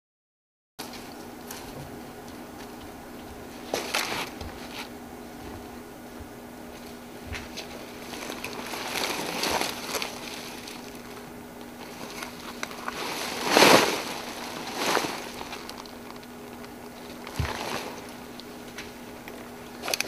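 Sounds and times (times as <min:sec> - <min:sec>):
papery skin rustling over dry leaves: 0:03.5 - 0:05.0, 0:06.7 - 0:20.0.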